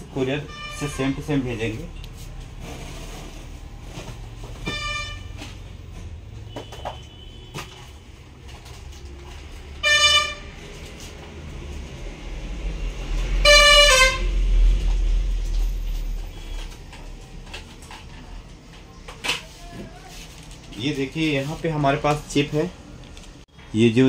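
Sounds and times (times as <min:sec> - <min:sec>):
traffic rumble: 0:00.0 - 0:24.0
vehicle horns honking: 0:00.2 - 0:02.8, 0:03.9 - 0:08.3, 0:09.8 - 0:10.7, 0:13.2 - 0:14.7.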